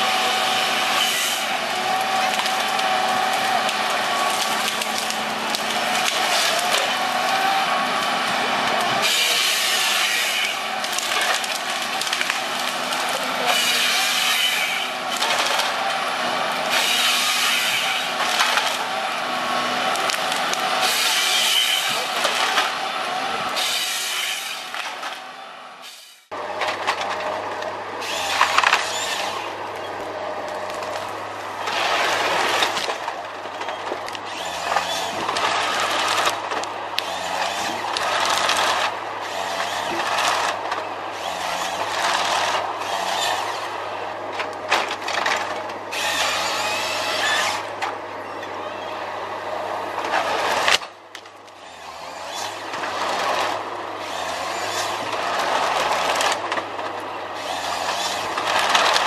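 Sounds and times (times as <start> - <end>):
diesel engine under load: 0.0 - 59.0
rasping crackling branch stripping: 1.3 - 23.7, 28.0 - 43.7, 50.0 - 59.0.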